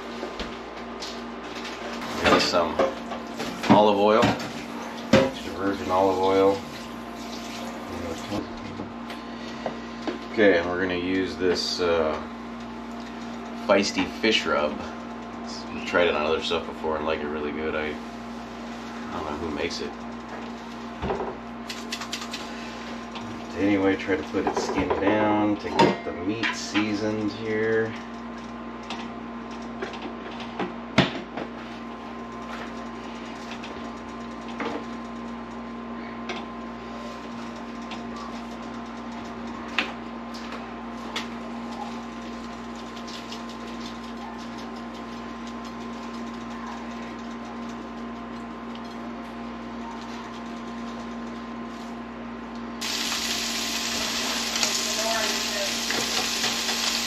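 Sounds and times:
appliance hum: 0.0s - 57.0s
fish sizzling in a pan: 52.8s - 57.0s.

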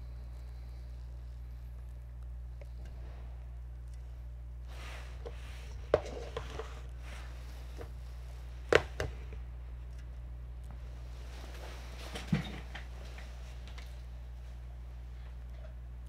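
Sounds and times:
steady low hum: 0.0s - 16.0s
soft rustling: 3.0s - 10.0s, 10.6s - 15.5s.

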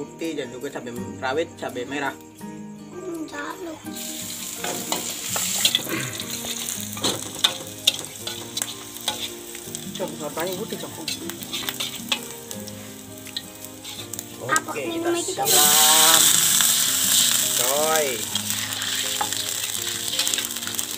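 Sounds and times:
vegetables sizzling in hot oil: 3.8s - 20.9s
metal spatula scraping a wok: 4.0s - 14.3s, 18.2s - 20.9s.

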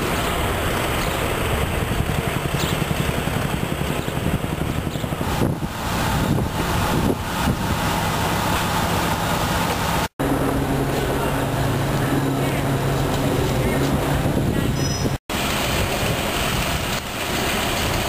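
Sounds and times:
engine idling hum: 0.0s - 18.0s
traffic rumble: 0.0s - 18.0s.

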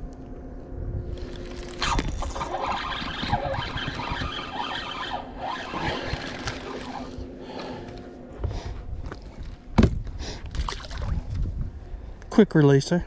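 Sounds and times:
electric motor hum: 0.5s - 10.1s
fishing reel whirring: 1.1s - 8.0s.

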